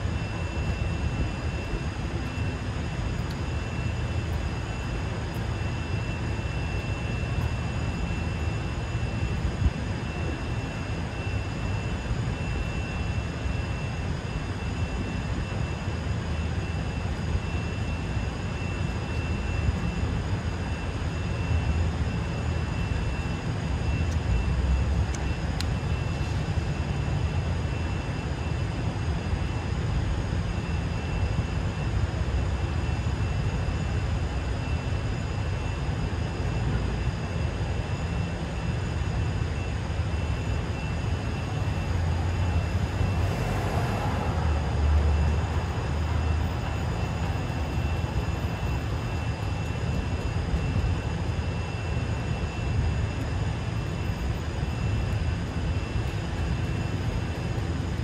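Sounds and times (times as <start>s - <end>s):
faint high whine: 0.0s - 58.0s
traffic rumble: 40.6s - 51.4s, 52.0s - 58.0s.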